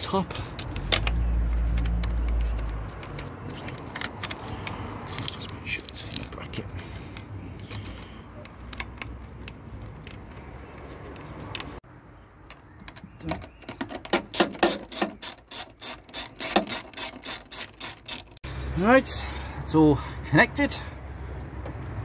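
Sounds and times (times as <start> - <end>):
ratchet wrench clicking: 14.3 - 18.4.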